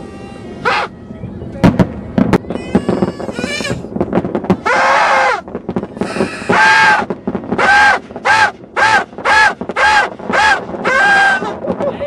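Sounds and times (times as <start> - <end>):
party horns blowing: 6.0 - 11.4.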